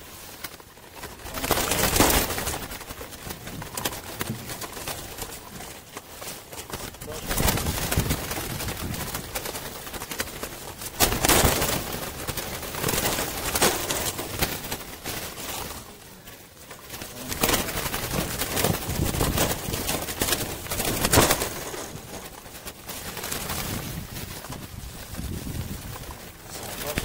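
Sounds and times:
doves flapping wings: 0.0s - 27.0s.

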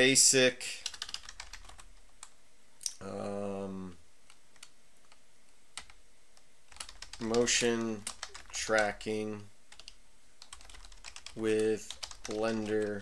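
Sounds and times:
keyboard typing: 0.8s - 2.4s, 6.7s - 9.0s, 9.7s - 13.0s
man saying uh: 3.0s - 4.0s, 7.2s - 8.0s, 8.6s - 9.5s, 11.4s - 13.0s.

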